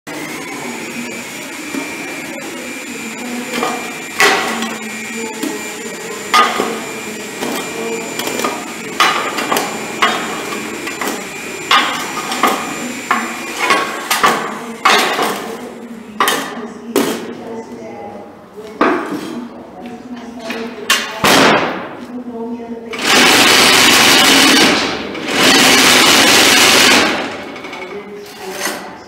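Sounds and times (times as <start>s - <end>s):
vibrator motor hum: 0.1s - 16.0s, 23.0s - 27.8s.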